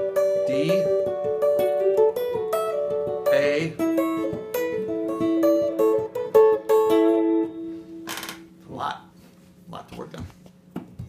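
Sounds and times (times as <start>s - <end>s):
electric guitar fingerstyle: 0.0s - 8.5s.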